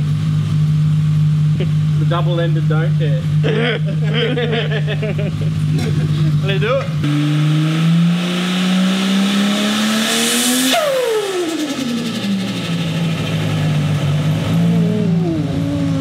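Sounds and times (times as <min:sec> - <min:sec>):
turbocharged engine revving: 0:00.0 - 0:16.0
turbo whistle and flutter: 0:10.7 - 0:12.9.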